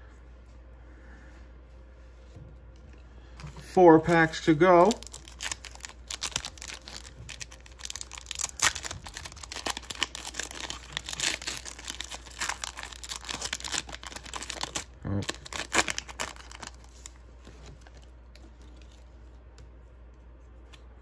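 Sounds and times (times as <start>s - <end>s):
foil wrapper crinkling and tearing: 4.1s - 19.0s.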